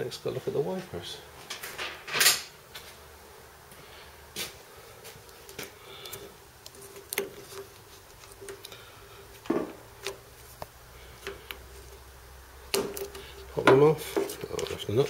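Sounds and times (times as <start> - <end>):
handling clicks and knocks: 12.7 - 15.0.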